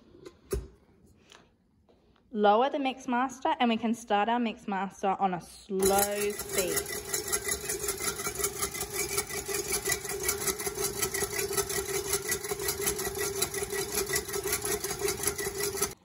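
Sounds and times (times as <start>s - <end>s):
stand mixer whisking: 5.8s - 16.0s.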